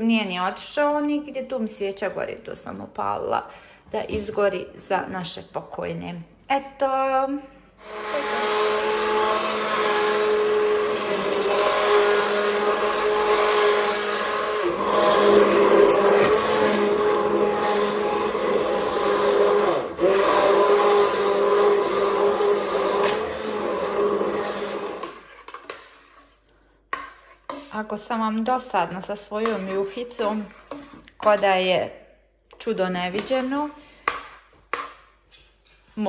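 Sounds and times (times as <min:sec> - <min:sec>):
immersion blender motor whine: 0:07.8 - 0:25.3.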